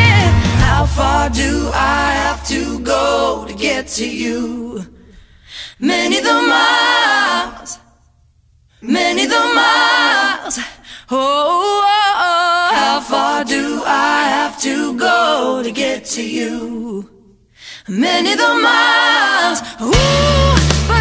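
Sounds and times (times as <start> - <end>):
voices singing a song: 0.0 - 8.1, 8.8 - 21.0.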